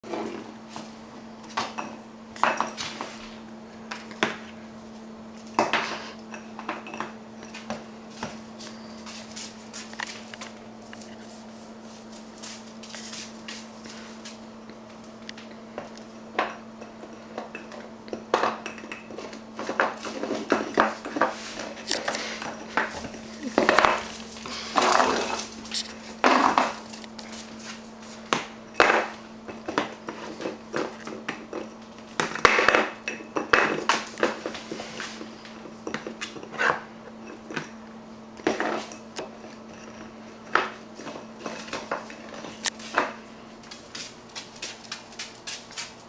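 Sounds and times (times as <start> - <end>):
steady low hum: 0.0 - 46.0
bowl clattering on tile floor: 1.5 - 3.3, 15.8 - 27.0, 28.3 - 37.7, 38.4 - 43.2
puppy chewing on a bowl: 14.7 - 46.0.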